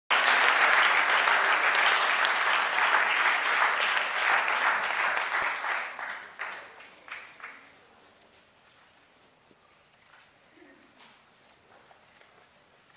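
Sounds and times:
audience applauding: 0.1 - 7.8.

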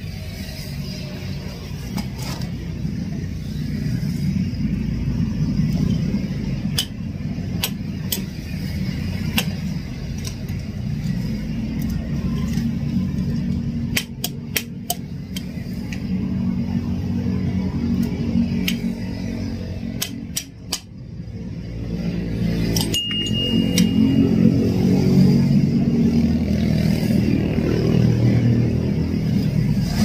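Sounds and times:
low mechanical rumble: 0.0 - 30.0.

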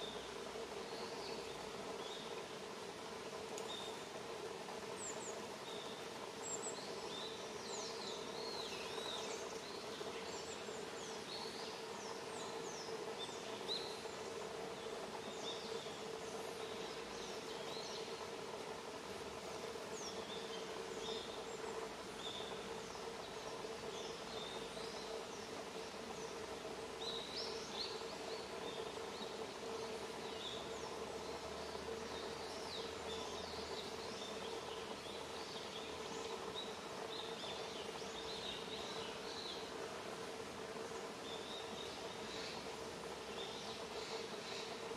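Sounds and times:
faint constant hum: 0.0 - 44.9
small birds chirping: 19.4 - 44.9.

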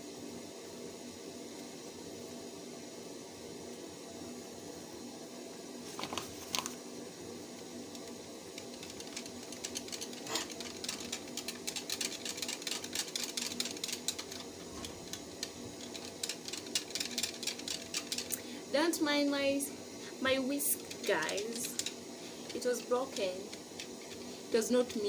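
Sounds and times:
whisk clicking against bowl: 8.0 - 18.4, 20.8 - 24.2.

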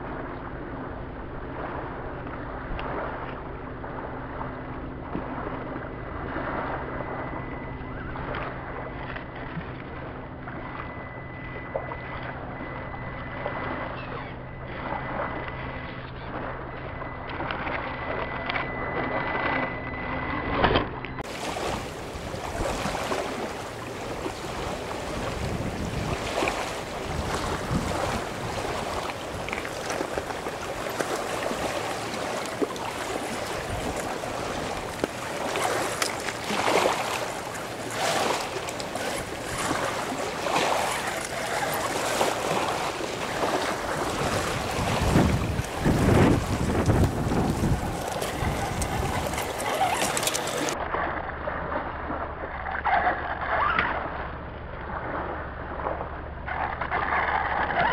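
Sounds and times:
wind buffeting microphone: 21.2 - 50.8
small waves on pebbles: 21.2 - 54.0
toy crawler grinding over stones: 49.3 - 50.8.

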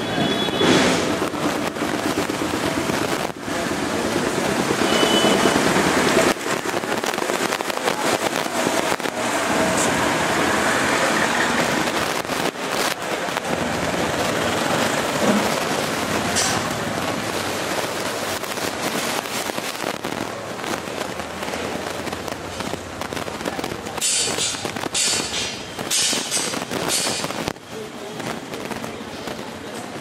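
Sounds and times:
heavy rain falling: 0.0 - 30.0.

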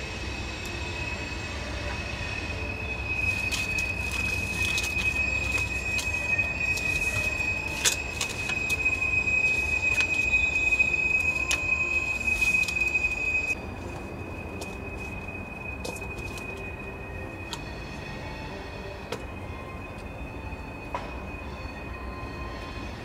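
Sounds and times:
metal bowl ringing: 2.6 - 13.8.

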